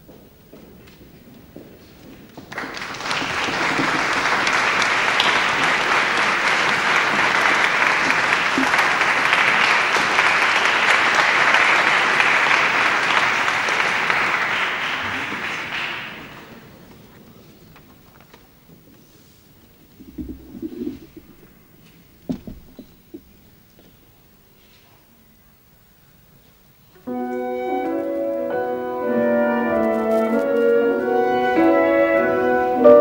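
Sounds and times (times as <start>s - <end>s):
audience applauding: 2.4s - 17.2s, 19.8s - 21.7s.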